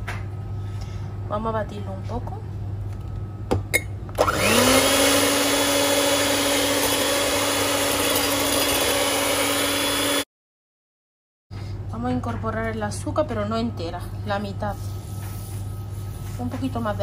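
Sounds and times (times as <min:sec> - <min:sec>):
electric hand mixer whining: 0:04.2 - 0:10.3.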